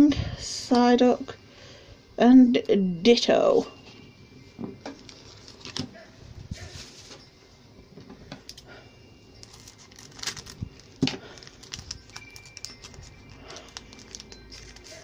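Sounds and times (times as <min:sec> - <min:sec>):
foil wrapper crinkling and tearing: 0:05.0 - 0:05.9, 0:09.4 - 0:15.0.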